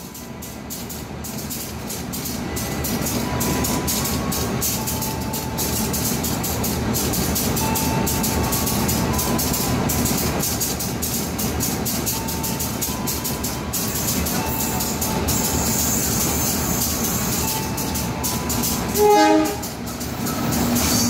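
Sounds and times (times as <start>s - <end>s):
train rumbling: 0.0s - 21.0s
wheels rattling on track: 0.0s - 21.0s.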